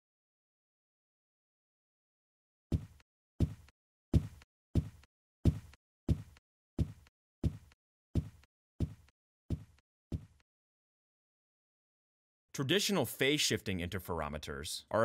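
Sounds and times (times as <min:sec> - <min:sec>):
heavy footsteps on hard floor: 0:02.7 - 0:10.4.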